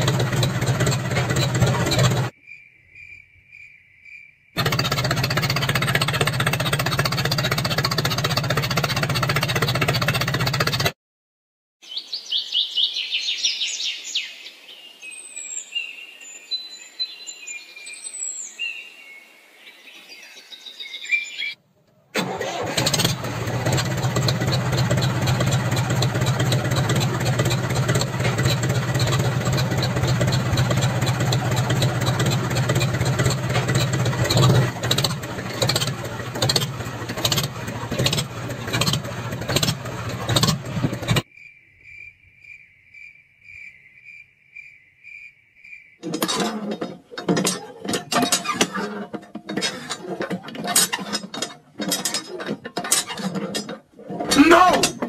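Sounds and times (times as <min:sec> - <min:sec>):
motor engine humming and pulsing: 0:00.0 - 0:02.3, 0:04.6 - 0:11.0, 0:22.2 - 0:41.2
birds chirping: 0:11.8 - 0:21.6.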